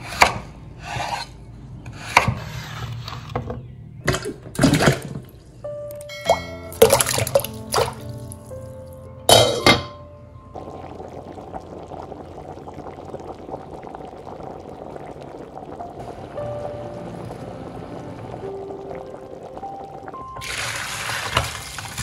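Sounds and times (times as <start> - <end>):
glass bowl clink: 6.0 - 7.5
water boiling in a pot: 10.5 - 22.0.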